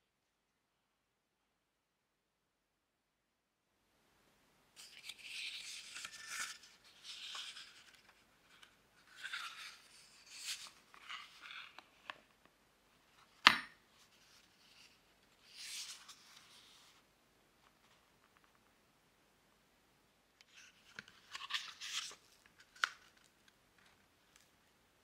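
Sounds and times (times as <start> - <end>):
book pages turning: 4.8 - 12.5, 13.2 - 17.0, 20.4 - 24.5.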